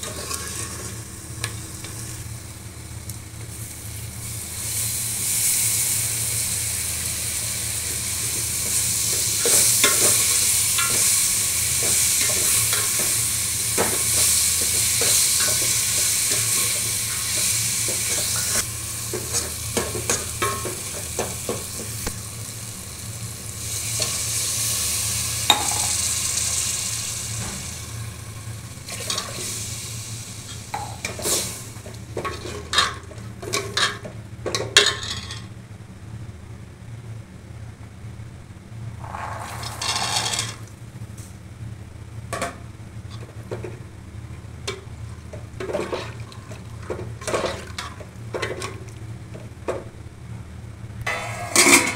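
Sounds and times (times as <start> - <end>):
ladle scraping metal pot: 0.0 - 1.0, 39.0 - 40.7
food sizzling in hot oil: 3.5 - 34.0, 39.0 - 40.7.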